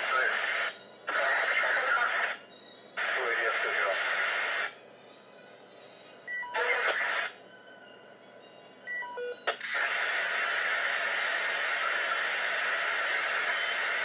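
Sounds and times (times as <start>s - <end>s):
electronic static hiss: 0.0s - 2.4s, 3.0s - 4.8s, 6.5s - 7.4s, 9.4s - 14.0s.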